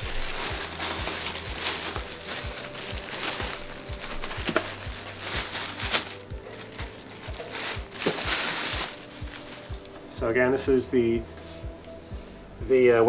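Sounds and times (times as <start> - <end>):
plastic bag crinkling: 0.0 - 10.0.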